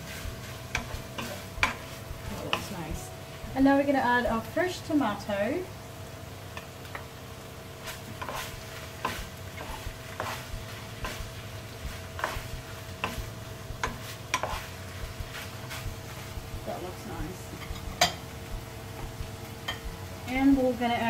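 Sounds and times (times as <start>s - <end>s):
wooden spoon scraping a pan: 0.0s - 3.0s, 7.8s - 18.2s
low hum: 0.0s - 21.0s
meat sizzling: 0.0s - 21.0s.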